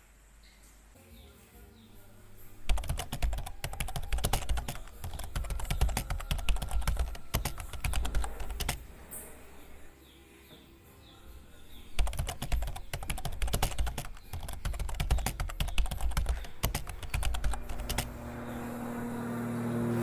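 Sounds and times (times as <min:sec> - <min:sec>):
rapid irregular clicking: 0:02.7 - 0:08.9, 0:12.0 - 0:18.1.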